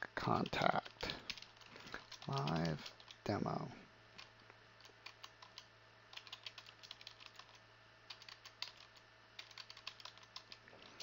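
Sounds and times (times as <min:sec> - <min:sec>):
steady low hum: 0:00.0 - 0:11.0
computer keyboard key clicks: 0:00.8 - 0:03.2, 0:05.0 - 0:10.6.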